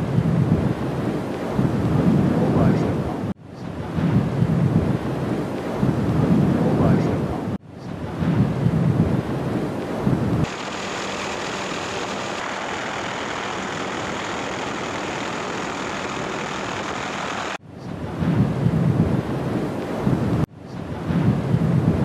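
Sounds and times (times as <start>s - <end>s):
lava fountain hiss: 10.4s - 17.6s
lava fountain rumble: 10.4s - 17.6s.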